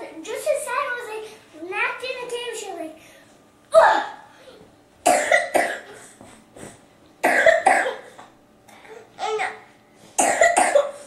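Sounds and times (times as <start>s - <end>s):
girl coughing: 5.1s - 6.2s, 7.2s - 8.2s, 10.2s - 11.0s.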